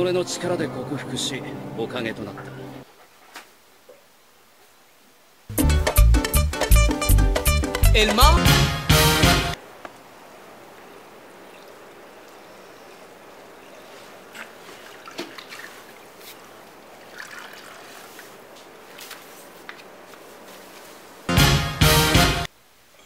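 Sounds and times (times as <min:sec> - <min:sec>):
steady low hiss: 0:00.0 - 0:23.0
loud music: 0:05.5 - 0:09.6, 0:21.3 - 0:22.5
faint rustles and taps: 0:18.5 - 0:21.1.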